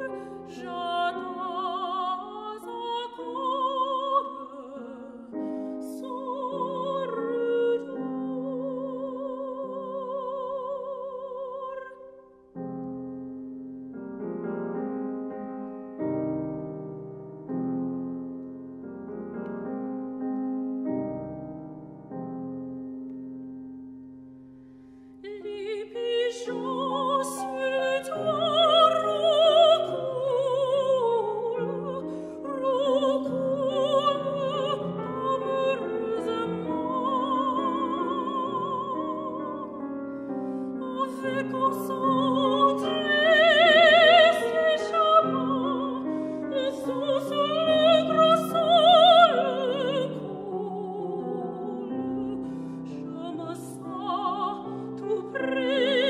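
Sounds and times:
soprano singing operatically: 0.0 - 12.2, 25.2 - 56.0
grand piano: 0.0 - 56.0.

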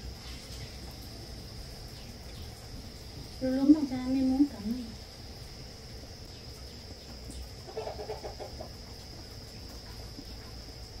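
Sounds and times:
high insect drone: 0.0 - 11.0
chicken clucking: 7.6 - 8.9.

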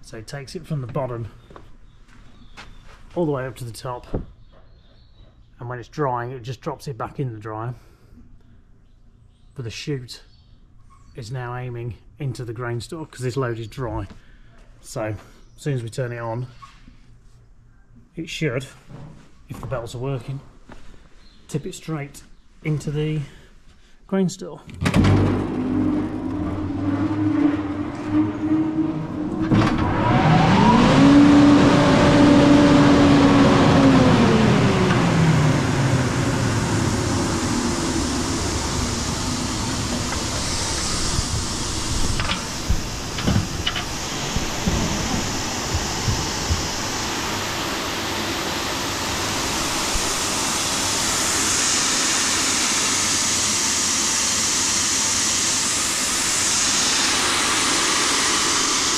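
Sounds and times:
grain dryer motor running: 24.8 - 58.9
grain pouring hiss: 35.8 - 58.9.

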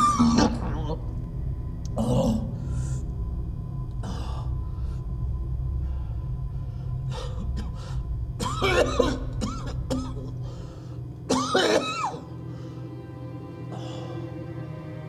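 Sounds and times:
low droning film score: 0.0 - 15.0
man coughing: 8.4 - 10.4, 11.3 - 12.2.

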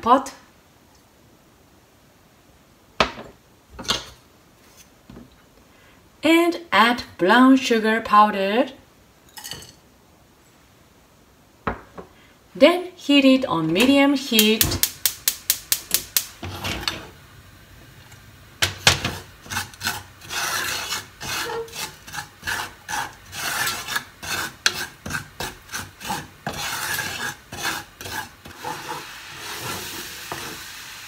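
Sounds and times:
wooden spatula scraping saucepan: 16.4 - 17.2, 18.6 - 30.7.

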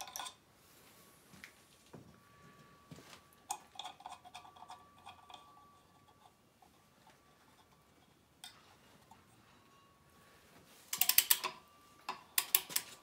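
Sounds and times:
faint high hum: 0.4 - 13.0
metallic clicks and taps: 10.9 - 13.0.

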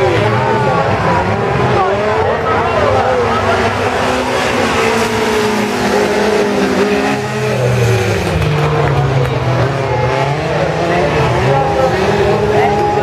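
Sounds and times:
race car engines running hard: 0.0 - 13.0.

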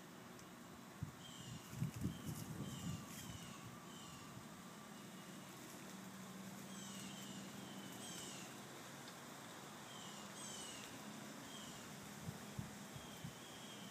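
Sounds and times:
low steady hum: 0.0 - 13.9
small birds chirping: 1.2 - 8.7, 9.8 - 12.0, 12.9 - 13.9.

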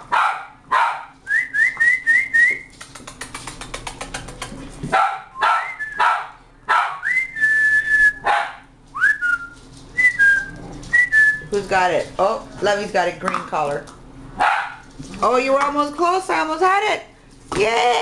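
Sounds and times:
whistled notes: 7.0 - 8.2, 9.0 - 11.5.

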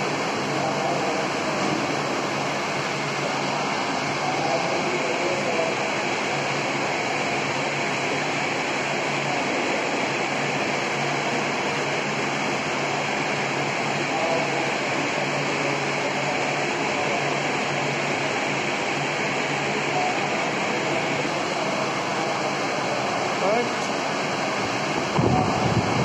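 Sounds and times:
rushing ventilation air: 0.0 - 26.0.

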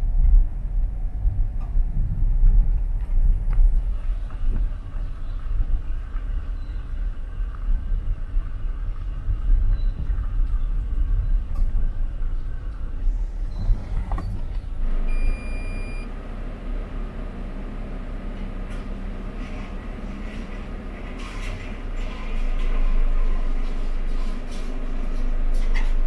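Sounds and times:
car tyres and engine rumble: 0.0 - 26.0
short high beep: 15.1 - 16.1.

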